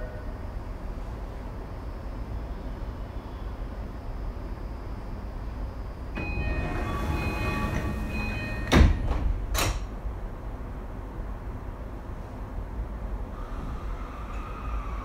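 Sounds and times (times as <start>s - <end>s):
train interior rumble: 5.4s - 15.0s
door chime: 6.2s - 9.3s
sliding doors thudding shut: 6.2s - 10.0s.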